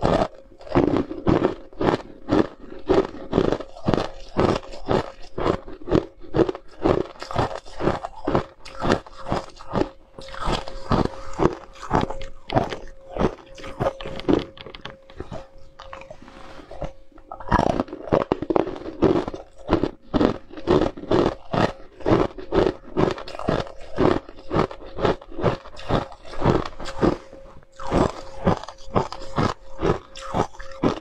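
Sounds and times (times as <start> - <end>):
ice cubes being chewed: 0.0 - 31.0.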